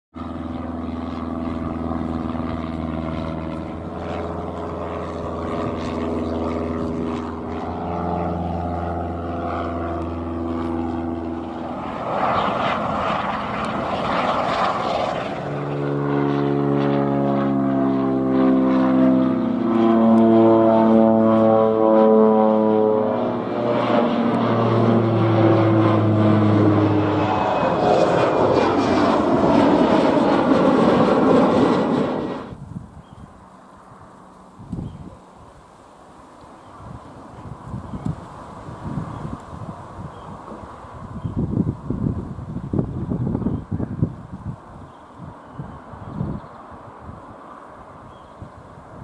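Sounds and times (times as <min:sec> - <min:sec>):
helicopter rotor and turbine: 0:00.1 - 0:49.0
light airplane propeller drone: 0:00.1 - 0:49.0
turboprop airliner passing overhead: 0:00.2 - 0:49.0.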